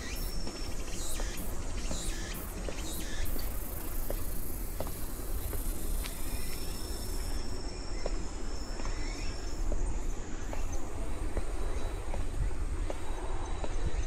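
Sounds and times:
high insect trill: 0.0 - 10.6
insects chirring: 0.0 - 14.0.

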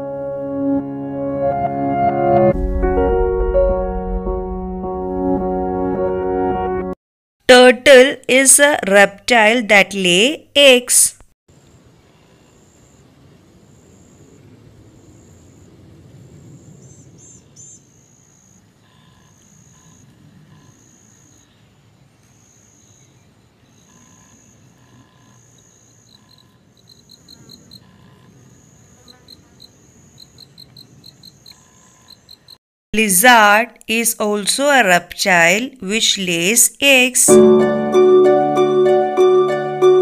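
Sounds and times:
faint low rumble: 2.5 - 6.0
insect high buzzing call: 22.3 - 32.6
insect short chirps: 22.3 - 32.6.

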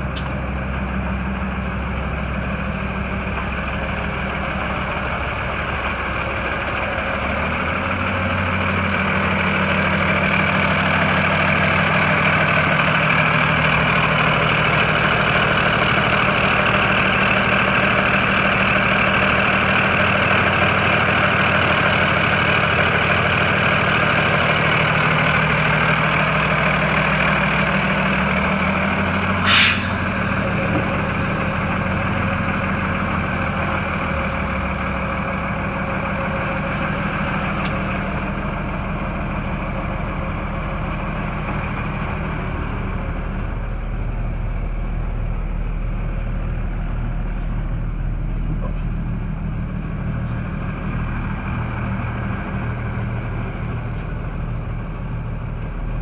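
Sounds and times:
diesel truck engine idling: 0.0 - 56.0
air brake hiss: 29.4 - 30.2.

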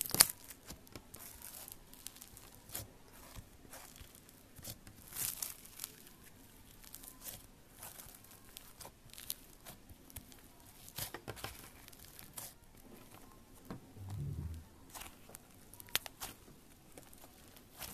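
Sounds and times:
slime clicking and crackling: 0.0 - 12.6
dull low thump: 13.8 - 14.8.

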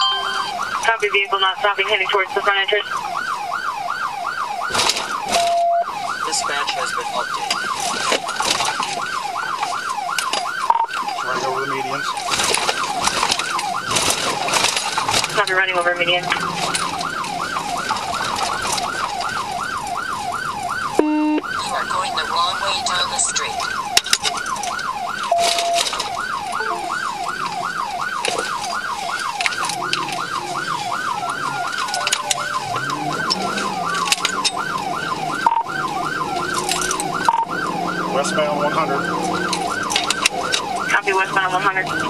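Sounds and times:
police siren yelping: 0.0 - 42.0.

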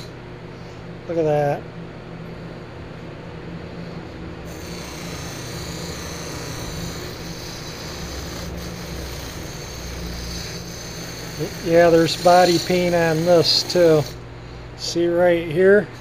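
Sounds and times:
bench buffer motor humming: 0.0 - 16.0
buffing wheel hissing on metal: 4.4 - 14.2.

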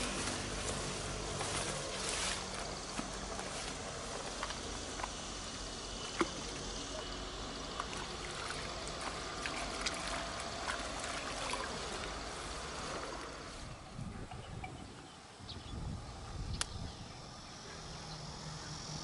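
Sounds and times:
flowing water: 0.0 - 14.4.

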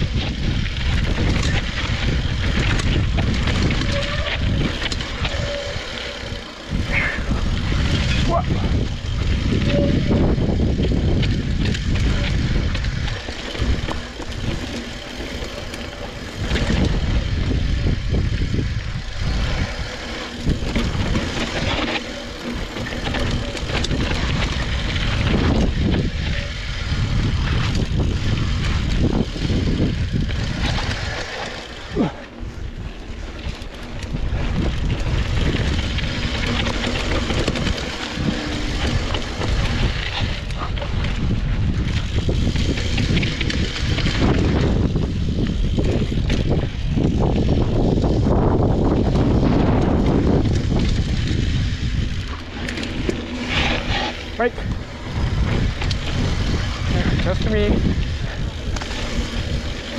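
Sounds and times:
mountain bike rattling on dirt trail: 0.0 - 59.9
wind rushing over microphone: 0.0 - 59.9.

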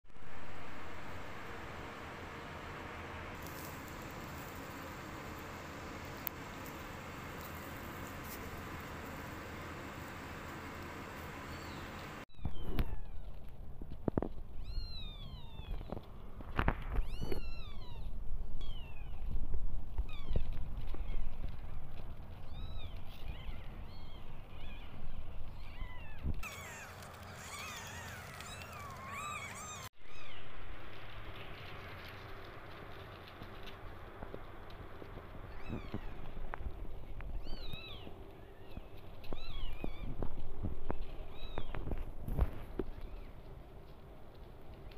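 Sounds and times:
newborn kittens mewing: 25.6 - 29.9.

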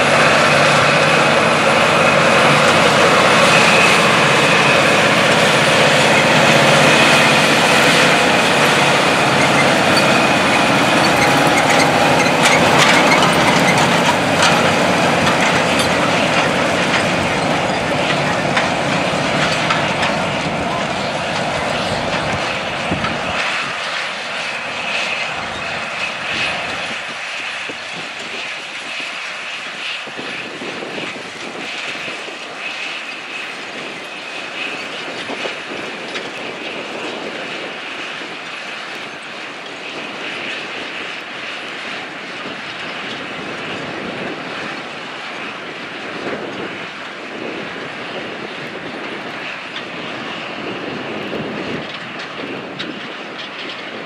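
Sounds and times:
tractor diesel engine droning: 0.0 - 27.0.

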